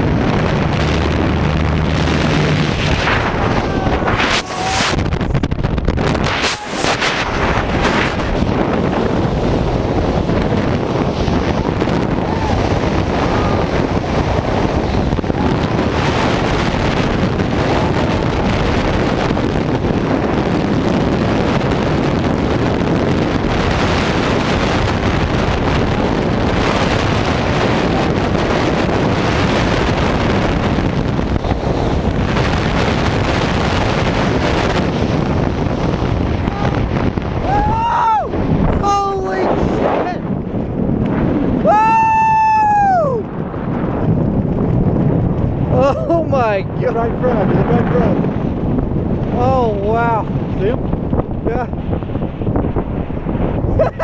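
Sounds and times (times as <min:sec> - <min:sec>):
wind buffeting microphone: 0:00.0 - 0:54.0.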